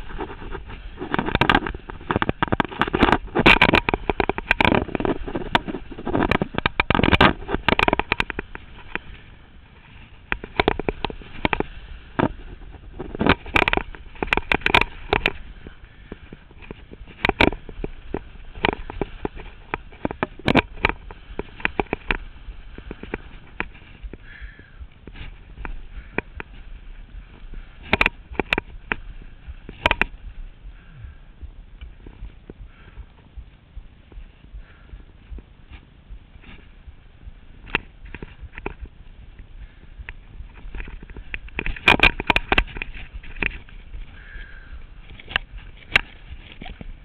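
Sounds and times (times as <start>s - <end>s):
skis scraping over snow: 0.0s - 6.6s, 7.3s - 30.9s
wind noise on microphone: 0.0s - 47.0s.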